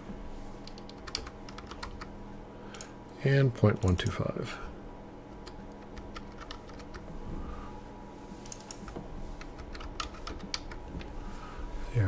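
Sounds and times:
faint steady hum: 0:00.0 - 0:12.0
keyboard typing: 0:00.6 - 0:02.1, 0:05.4 - 0:07.1, 0:08.4 - 0:11.1.

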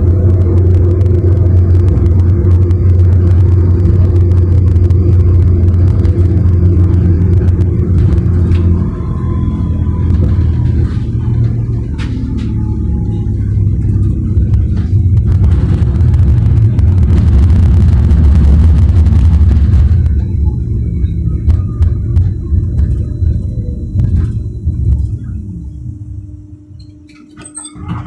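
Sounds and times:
tram rumbling on rails: 0:00.0 - 0:28.0.

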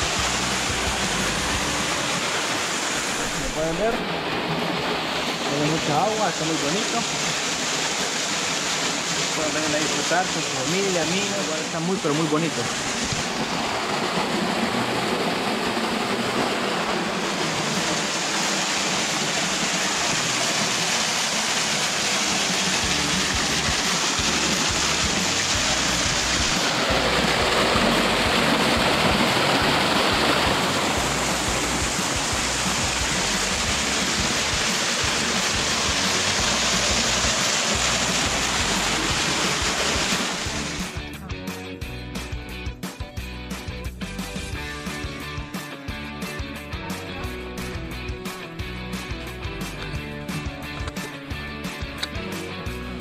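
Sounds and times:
waterfall splashing over rocks: 0:00.0 - 0:41.0.

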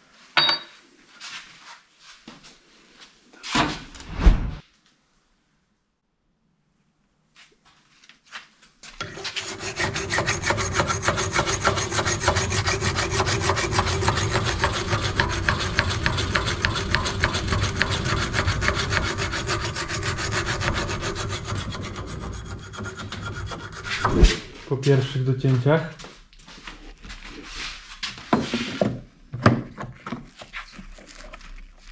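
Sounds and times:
hand file scraping metal tube: 0:09.0 - 0:24.5.

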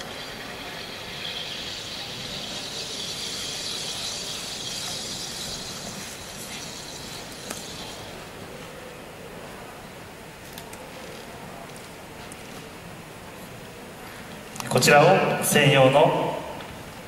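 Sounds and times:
carbon dioxide hissing into bottle: 0:00.0 - 0:08.3.

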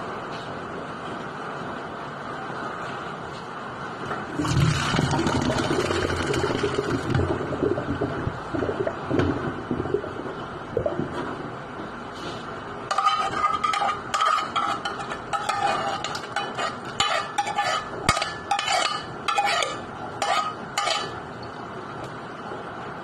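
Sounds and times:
metal spoon scraping metal pot: 0:12.9 - 0:21.2.

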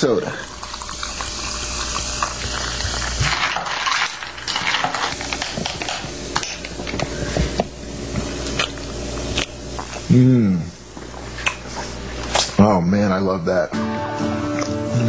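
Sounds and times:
soda fizzing over ice: 0:00.0 - 0:05.2.

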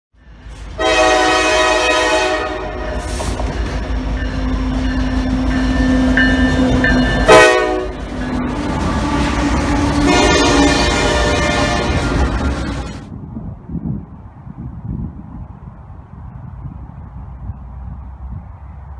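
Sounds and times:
freight train rumbling past: 0:00.2 - 0:18.9
locomotive air horn blasting: 0:00.7 - 0:03.1, 0:07.2 - 0:12.4.

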